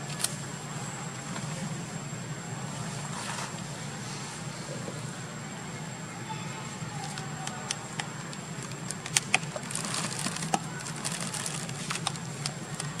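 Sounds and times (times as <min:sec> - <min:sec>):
low background hum: 0:00.0 - 0:13.0
plastic bag crackling: 0:08.6 - 0:13.0.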